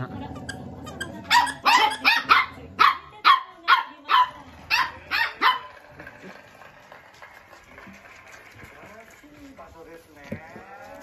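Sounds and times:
dog play barks: 0.3 - 5.8.

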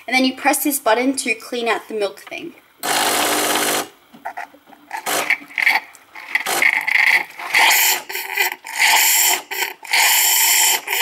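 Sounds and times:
pump buzzing: 2.8 - 11.0
steam sputtering and hissing: 7.6 - 11.0.

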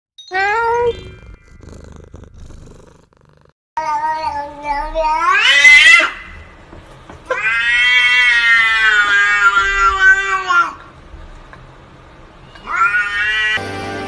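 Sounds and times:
cat yowling: 7.3 - 10.6, 12.6 - 13.6.

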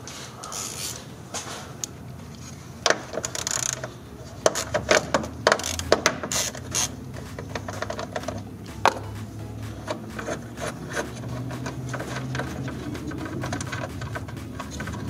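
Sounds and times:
hand ratchet clicking: 2.9 - 9.1, 9.7 - 15.0.

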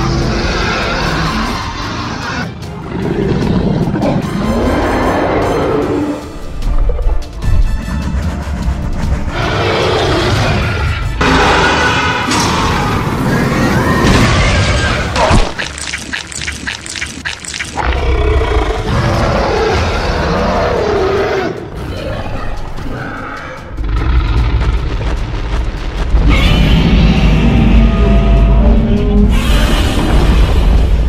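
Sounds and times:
monster roaring and growling: 0.0 - 6.3, 9.3 - 15.6, 17.8 - 25.0, 26.1 - 31.0
dramatic background music: 0.0 - 31.0.

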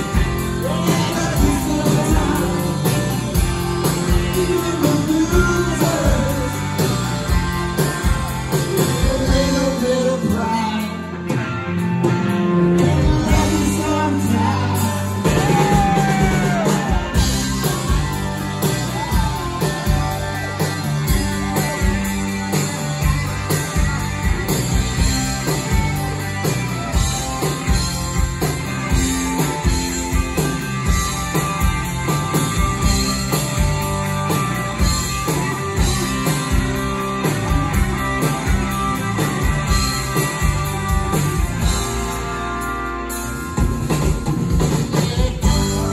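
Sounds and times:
live rock band playing: 0.0 - 45.9
person singing: 0.1 - 6.9, 8.5 - 11.4, 12.6 - 20.7, 44.8 - 45.9.

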